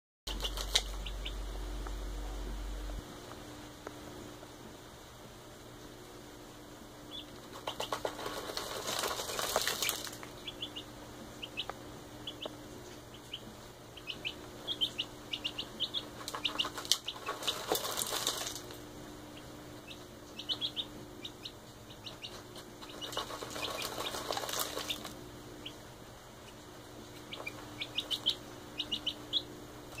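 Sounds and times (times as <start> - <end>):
wings flapping in grain feed: 0.3 - 1.1, 7.1 - 10.7, 15.8 - 18.8, 22.0 - 25.2
chick cheeping: 0.3 - 1.5, 7.1 - 8.1, 9.2 - 18.5, 19.2 - 30.0.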